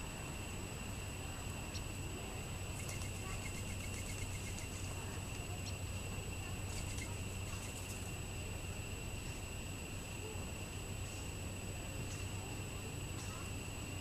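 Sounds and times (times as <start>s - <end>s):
background hiss and hum: 0.0s - 14.0s
songbird calling: 2.8s - 6.0s, 6.6s - 8.0s.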